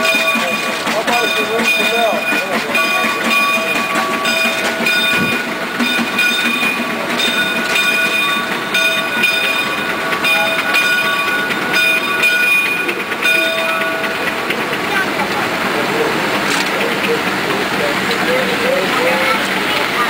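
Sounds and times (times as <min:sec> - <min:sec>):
metallic ringing tones: 0:00.0 - 0:14.6
steam locomotive clatter: 0:00.0 - 0:20.0.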